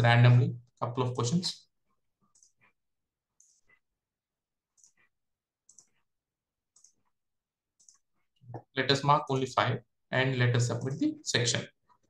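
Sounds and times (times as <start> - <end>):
faint computer mouse clicks: 4.8 - 6.0, 6.7 - 7.1, 7.8 - 8.0.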